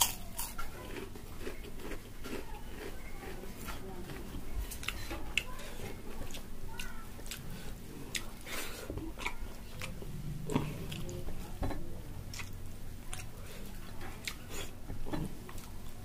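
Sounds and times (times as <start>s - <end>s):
person chewing food: 0.0s - 16.0s.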